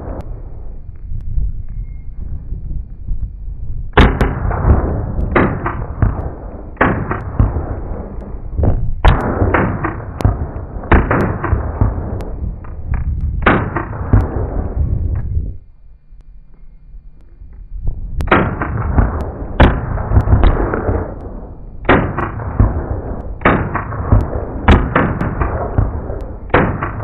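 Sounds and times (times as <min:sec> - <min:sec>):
echoing rifle shots: 0:04.0 - 0:15.0, 0:18.2 - 0:27.0.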